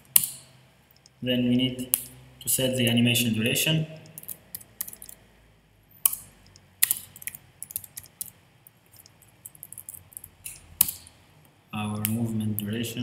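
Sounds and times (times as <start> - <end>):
computer keyboard typing: 4.1 - 5.2, 6.1 - 11.1.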